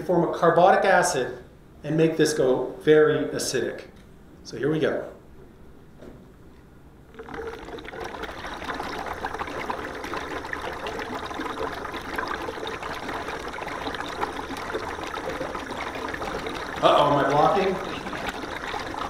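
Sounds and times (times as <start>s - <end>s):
gas bubbling through water: 7.1s - 19.0s.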